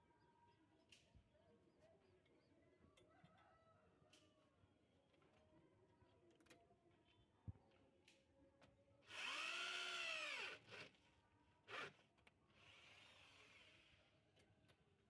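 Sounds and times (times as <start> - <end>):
power drill driving a bolt: 9.1 - 11.0, 12.6 - 14.0.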